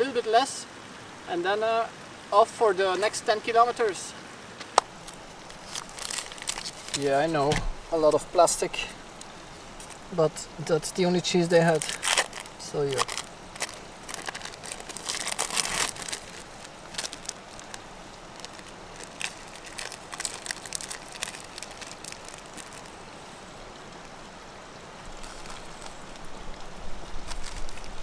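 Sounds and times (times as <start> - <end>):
steady background hiss: 0.0 - 28.0
plastic wrappers crinkling: 5.0 - 7.5, 11.5 - 23.1, 25.1 - 28.0.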